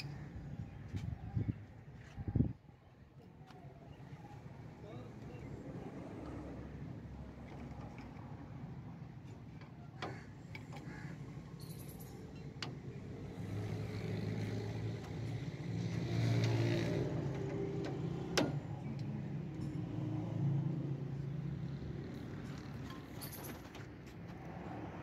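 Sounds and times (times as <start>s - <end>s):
sharp metal clinks: 11.6s - 12.4s.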